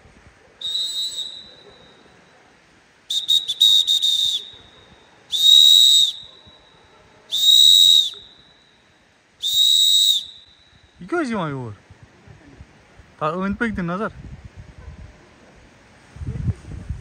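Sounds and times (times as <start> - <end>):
shrill whistle blasts: 0.6 - 2.1, 3.1 - 11.0.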